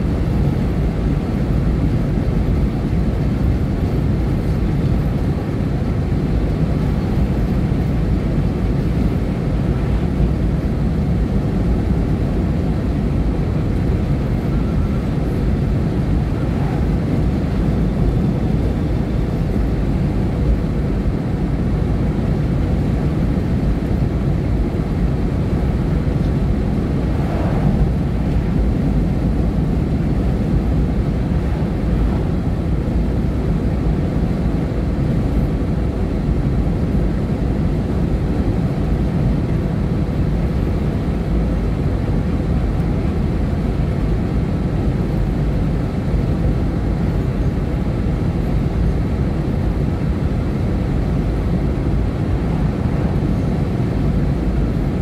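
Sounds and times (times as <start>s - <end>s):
vehicle rumbling: 0.0s - 21.0s, 22.8s - 34.4s.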